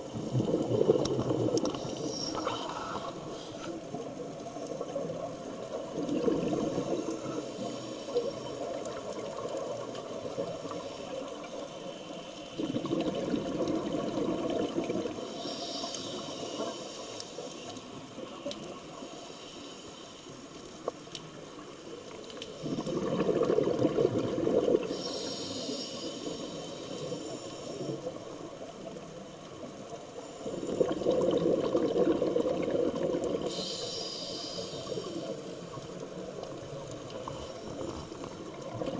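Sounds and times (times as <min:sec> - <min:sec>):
diver bubbly exhalation: 0:00.2 - 0:01.6, 0:22.6 - 0:24.9
regulator hiss: 0:15.2 - 0:17.8, 0:18.8 - 0:20.9, 0:24.8 - 0:31.0, 0:33.4 - 0:38.5.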